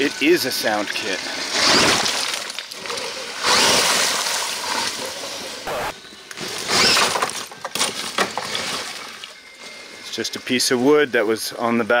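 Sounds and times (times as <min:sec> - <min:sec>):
rc truck crunching over rocks: 0:01.2 - 0:08.7.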